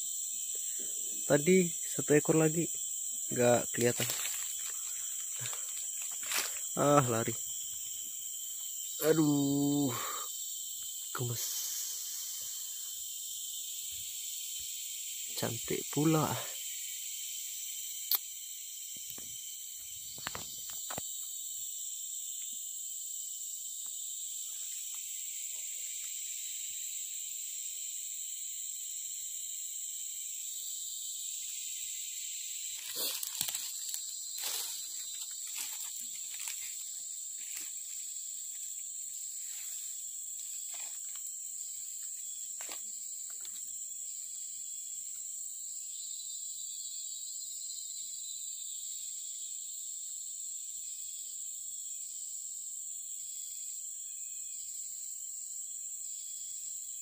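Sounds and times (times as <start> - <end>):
high-pitched insect chorus: 0.0 - 57.0.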